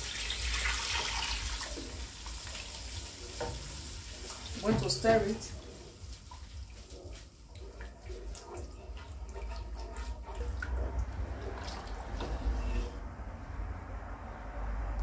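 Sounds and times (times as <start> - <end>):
spoon stirring thick soup: 5.6 - 13.0.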